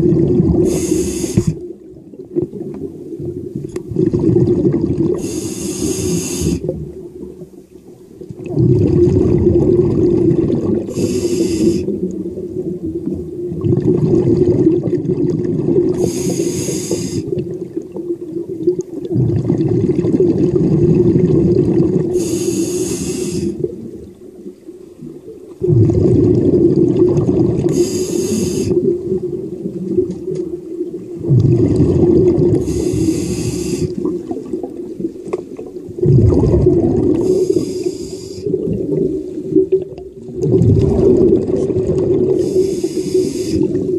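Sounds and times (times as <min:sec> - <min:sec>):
exhaled air bubbling underwater: 0:00.0 - 0:43.9
scuba regulator inhale hiss: 0:00.6 - 0:01.6, 0:05.1 - 0:06.7, 0:10.9 - 0:12.0, 0:16.0 - 0:17.4, 0:22.1 - 0:23.7, 0:27.7 - 0:28.9, 0:32.6 - 0:34.1, 0:37.2 - 0:38.6, 0:42.4 - 0:43.9.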